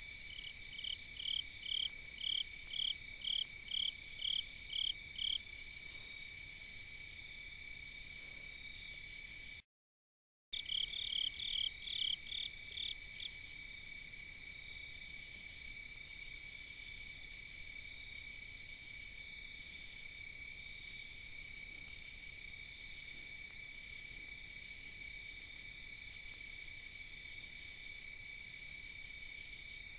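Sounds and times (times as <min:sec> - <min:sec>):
rapid cricket chirps: 0:00.0 - 0:09.6, 0:10.6 - 0:29.9
insects trilling: 0:00.1 - 0:07.1.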